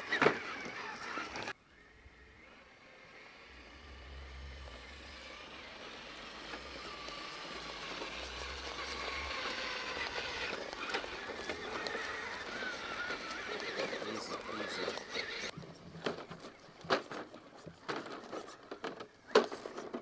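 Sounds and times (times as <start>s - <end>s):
electric motors whining: 0.0s - 20.0s
tyres clicking on rock: 6.4s - 20.0s.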